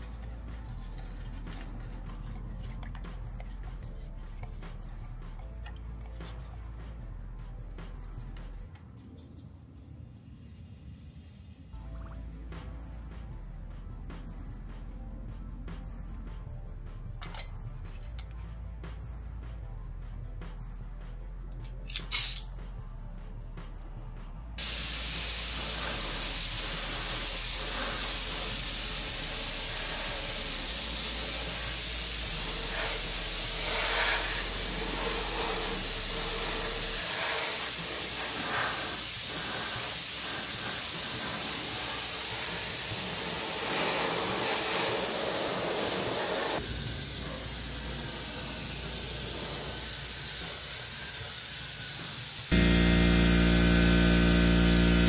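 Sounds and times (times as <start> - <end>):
music: 0.0 - 55.0
paint spray gun hissing: 22.1 - 22.5, 24.6 - 55.0
steady machine hum: 52.5 - 55.0.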